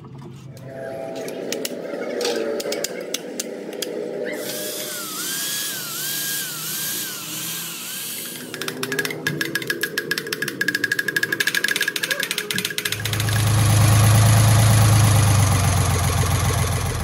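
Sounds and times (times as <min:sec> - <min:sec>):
hand drill whining: 0:04.4 - 0:17.0.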